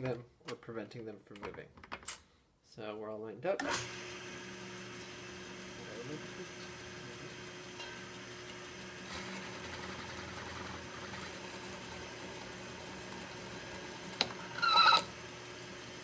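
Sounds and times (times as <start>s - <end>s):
electric drill cutting metal: 3.6s - 16.0s
drill bit squealing: 14.4s - 15.2s.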